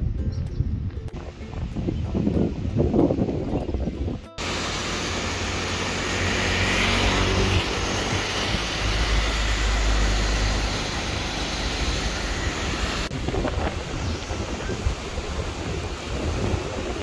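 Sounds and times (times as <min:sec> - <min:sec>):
propeller plane engines droning: 0:04.4 - 0:17.0.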